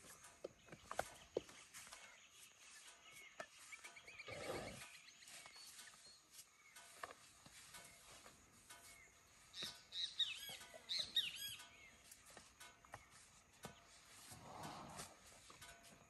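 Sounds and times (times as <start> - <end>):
high chirps: 9.6 - 12.2.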